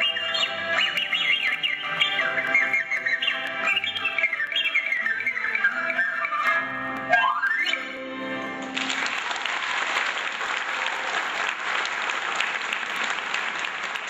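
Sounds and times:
wind instrument solo: 0.0s - 8.3s
audience applause: 8.6s - 14.0s.

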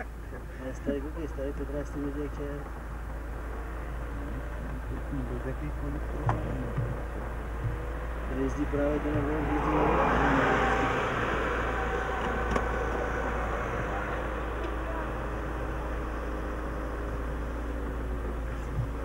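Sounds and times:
engine hum and road noise: 0.0s - 19.0s
car passing by: 8.6s - 15.2s.

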